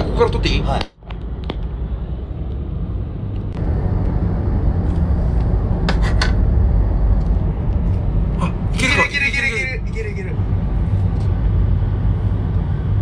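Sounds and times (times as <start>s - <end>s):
car road noise rumble: 0.0s - 13.0s.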